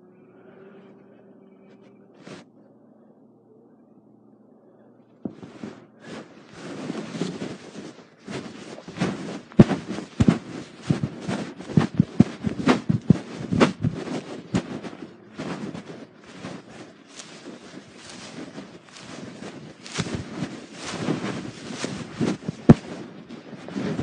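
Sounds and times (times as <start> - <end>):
fabric rubbing on microphone: 2.2 - 2.5, 5.2 - 24.0.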